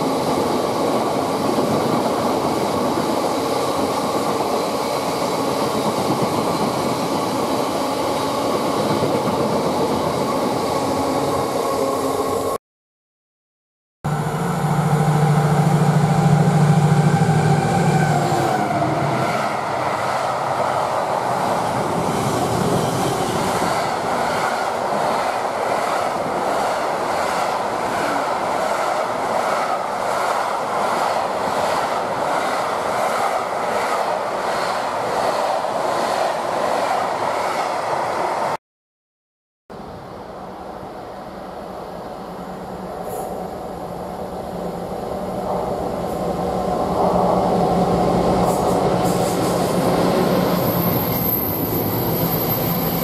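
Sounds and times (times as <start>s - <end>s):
diesel locomotive engine drone: 14.1s - 24.2s.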